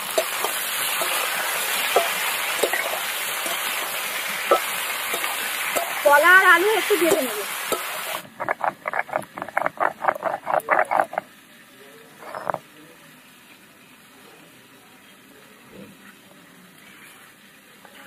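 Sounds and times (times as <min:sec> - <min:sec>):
stone rasping on grinding stone: 0:08.2 - 0:11.2, 0:12.2 - 0:12.6.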